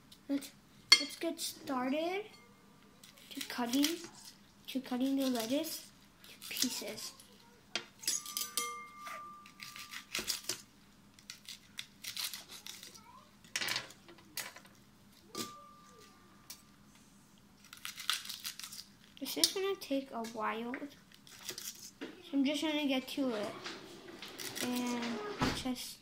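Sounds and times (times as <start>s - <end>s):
lettuce leaves tearing: 3.0s - 4.4s, 5.0s - 5.7s, 6.3s - 7.3s, 9.4s - 10.6s, 11.2s - 13.0s, 17.6s - 19.2s, 21.1s - 21.9s, 24.4s - 25.0s.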